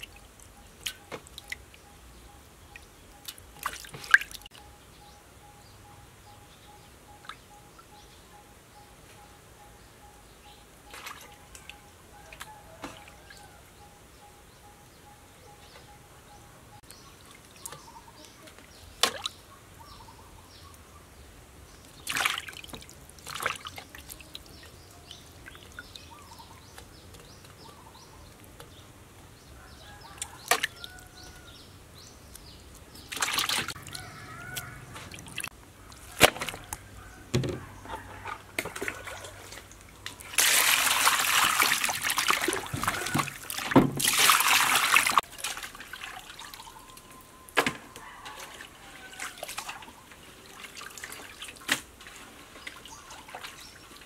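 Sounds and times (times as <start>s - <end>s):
water sloshing: 2.7s - 4.5s, 10.8s - 11.8s, 21.9s - 27.6s, 32.7s - 36.8s, 37.4s - 47.1s, 48.2s - 54.0s
water splashing in metal basin: 3.6s - 4.5s, 22.0s - 24.7s, 30.2s - 30.9s, 33.1s - 34.0s, 38.6s - 46.7s, 48.3s - 53.7s.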